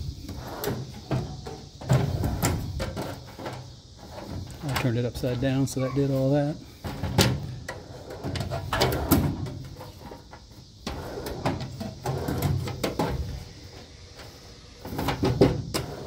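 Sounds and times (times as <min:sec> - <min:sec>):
metal drawer sliding: 0:06.8 - 0:10.3, 0:10.9 - 0:16.0.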